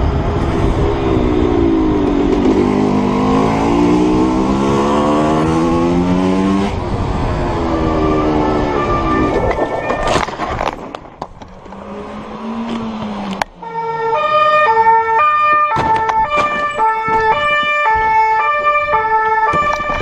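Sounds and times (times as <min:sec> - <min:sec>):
police two-tone siren: 0:07.7 - 0:10.2, 0:13.6 - 0:20.0
dirt bike scraping: 0:08.1 - 0:13.4.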